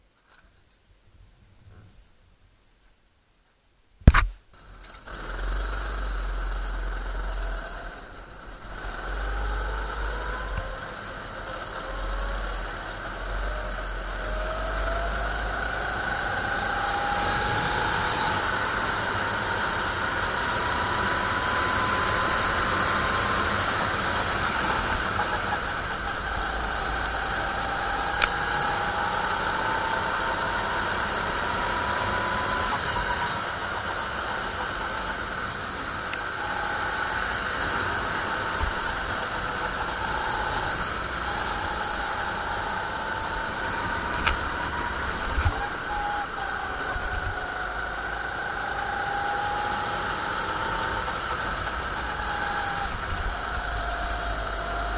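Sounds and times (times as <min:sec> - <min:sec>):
sharp click: 0:04.0 - 0:04.5
kart engine running: 0:04.1 - 0:54.9.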